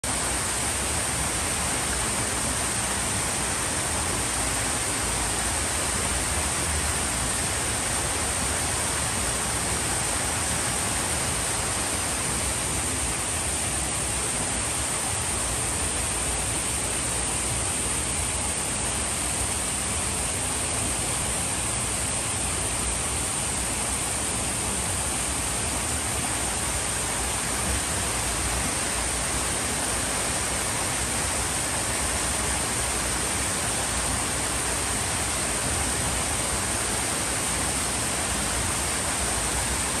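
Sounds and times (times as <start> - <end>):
waterfall rushing over rocks: 0.0 - 40.0.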